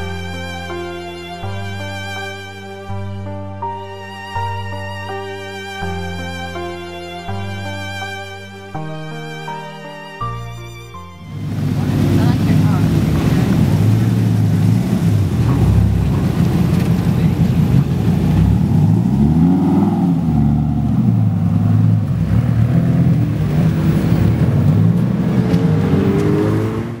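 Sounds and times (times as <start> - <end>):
car engine revving: 11.2 - 27.0.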